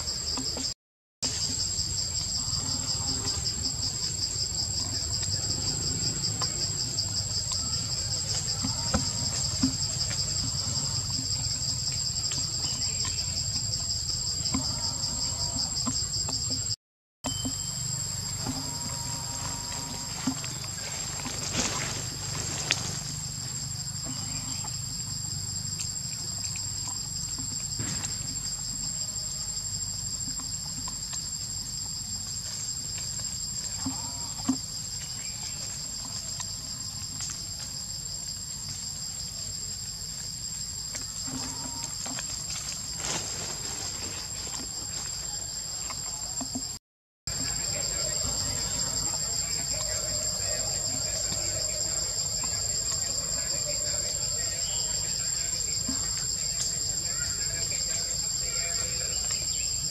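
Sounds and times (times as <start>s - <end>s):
insects chirring: 0.0s - 59.9s.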